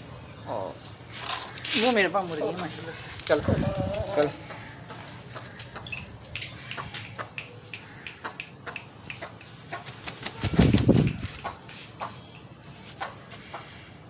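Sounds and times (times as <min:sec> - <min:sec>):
rooster wings flapping: 0:09.8 - 0:11.6.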